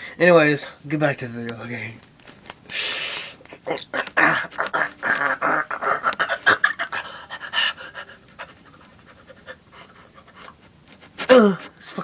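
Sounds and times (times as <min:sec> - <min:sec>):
breathy panting: 0:02.7 - 0:11.9.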